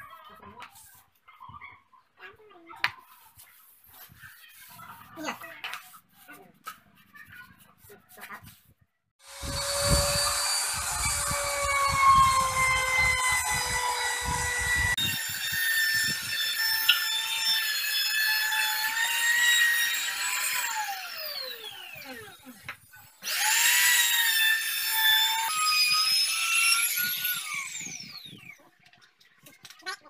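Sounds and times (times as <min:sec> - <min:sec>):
electric router whining: 0:09.2 - 0:22.5, 0:23.2 - 0:28.5.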